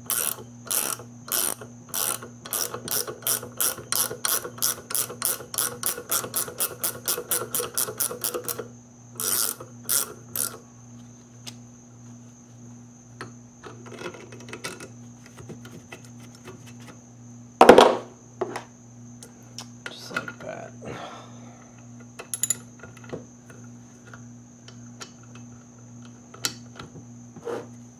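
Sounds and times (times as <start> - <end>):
ratchet wrench clicking: 0.1 - 8.6, 9.2 - 10.6.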